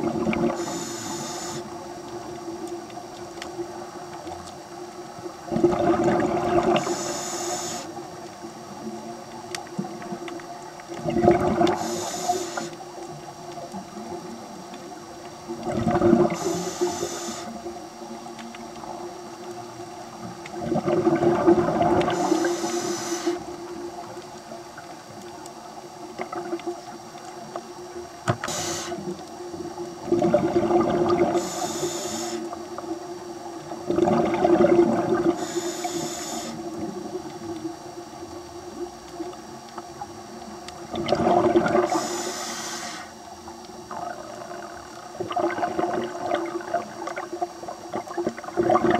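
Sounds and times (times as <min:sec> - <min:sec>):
diver breathing through regulator: 0:00.4 - 0:01.8, 0:06.7 - 0:08.0, 0:11.6 - 0:12.8, 0:16.2 - 0:17.7, 0:22.0 - 0:23.6, 0:28.4 - 0:29.1, 0:31.2 - 0:32.6, 0:35.2 - 0:36.7, 0:41.8 - 0:43.2.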